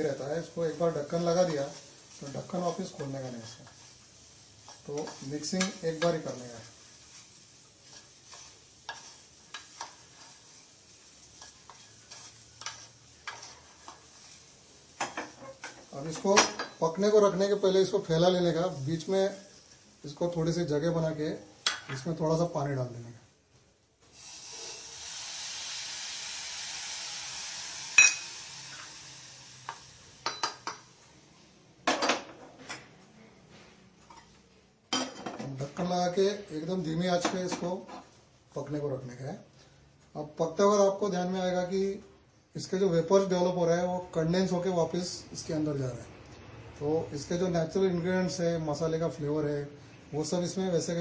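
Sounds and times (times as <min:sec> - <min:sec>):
water sizzling in hot pan: 0:00.0 - 0:21.8, 0:24.0 - 0:31.2
spatula scraping metal pan: 0:07.8 - 0:10.5, 0:11.4 - 0:14.4.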